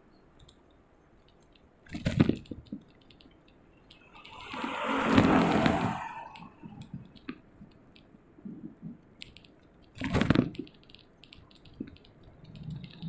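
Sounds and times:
bicycle clicks and rattles: 0:00.4 - 0:04.9, 0:09.1 - 0:13.0
rush of noise: 0:04.0 - 0:06.9.

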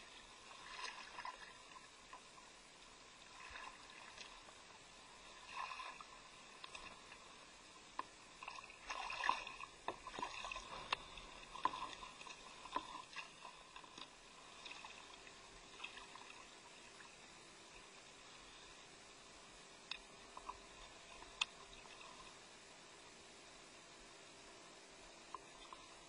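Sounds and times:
water splashes: 0:00.0 - 0:07.4, 0:08.0 - 0:17.4
waves lapping against kayak hull: 0:00.0 - 0:17.2.

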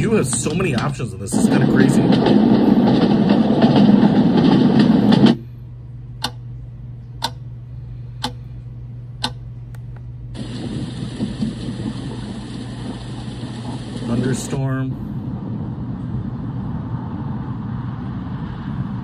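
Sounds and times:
fire crackling from speaker: 0:00.0 - 0:05.6, 0:10.3 - 0:19.0
steady low hum: 0:00.0 - 0:19.0
sharp ticks: 0:06.2 - 0:06.4, 0:07.2 - 0:07.4, 0:08.2 - 0:08.4, 0:09.2 - 0:09.4.

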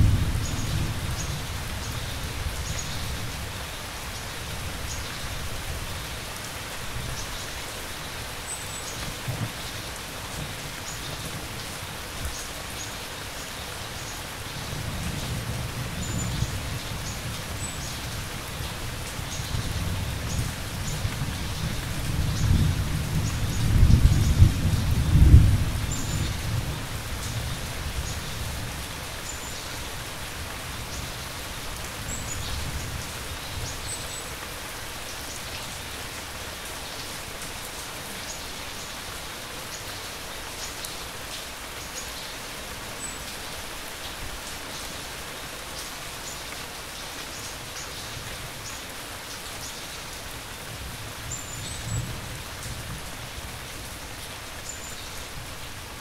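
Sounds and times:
rolling thunder: 0:00.0 - 0:01.5, 0:21.5 - 0:26.8
steady rain: 0:00.0 - 0:56.0.

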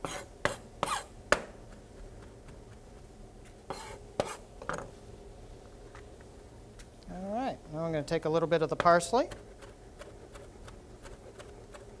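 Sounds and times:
knife chopping on cutting board: 0:03.7 - 0:04.4.

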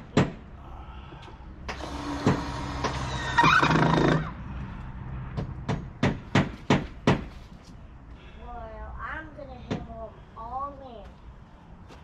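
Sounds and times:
sharp knocks: 0:05.3 - 0:07.3.

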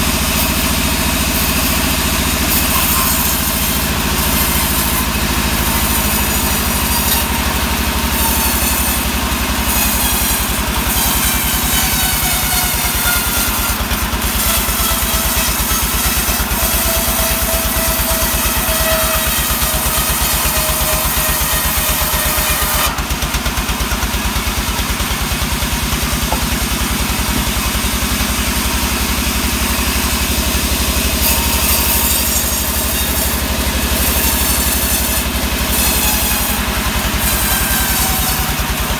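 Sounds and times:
saw blade whining through wood: 0:00.0 - 0:38.9
engine beating steadily: 0:22.9 - 0:31.2.

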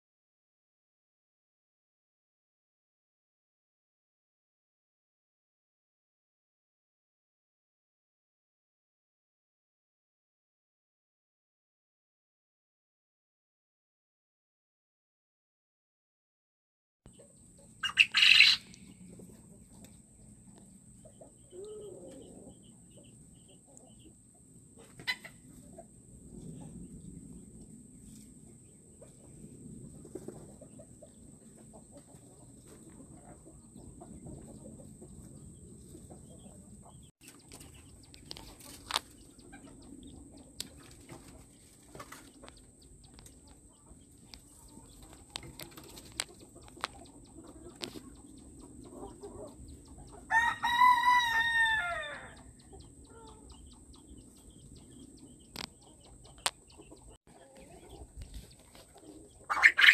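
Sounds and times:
rooster crowing: 0:50.3 - 0:52.4.

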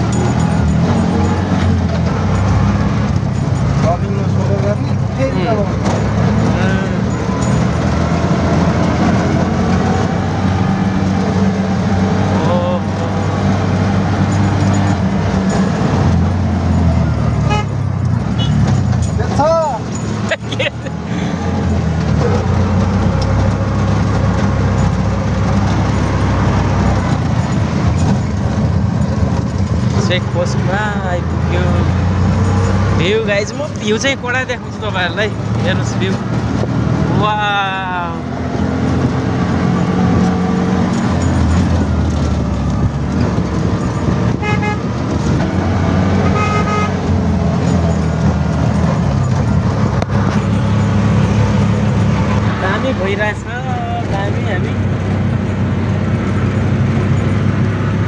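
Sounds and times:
auto rickshaw engine running: 0:00.0 - 0:58.0
road noise: 0:00.0 - 0:58.0
horn toots: 0:17.4 - 0:18.7, 0:44.3 - 0:44.9, 0:46.2 - 0:47.0.

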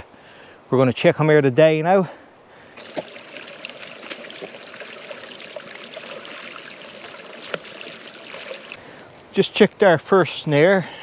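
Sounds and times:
twigs cracking: 0:02.7 - 0:08.8.

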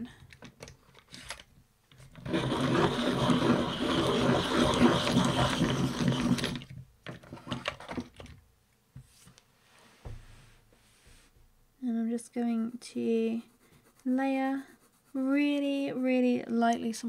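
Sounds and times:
electric pencil sharpener running: 0:02.1 - 0:06.7.

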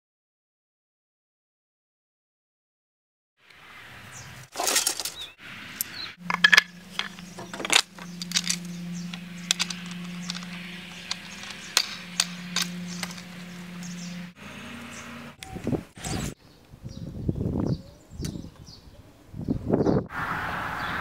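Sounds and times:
bow parts clicking and clinking: 0:04.5 - 0:14.4
steady low hum: 0:05.7 - 0:16.9.

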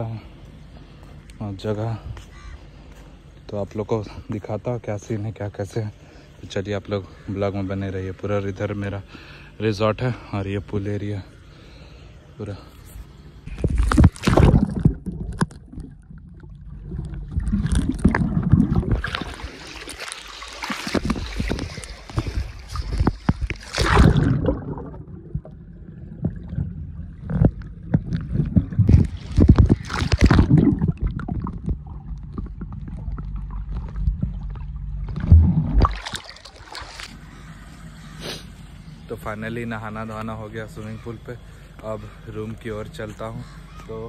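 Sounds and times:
muffled underwater gurgling: 0:13.4 - 0:19.6, 0:20.8 - 0:43.8
pool water splashing: 0:13.6 - 0:38.4.

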